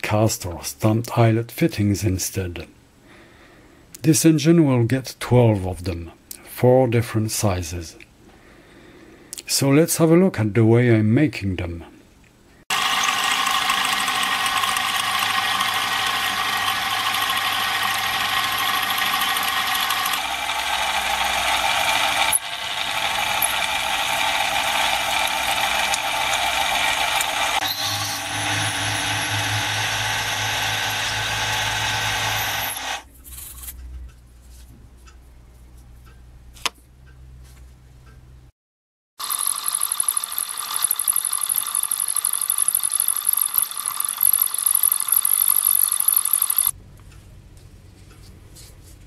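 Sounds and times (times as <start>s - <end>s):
milling machine cutting metal: 12.7s - 33.1s, 39.2s - 46.7s
small clicks: 25.5s - 27.6s.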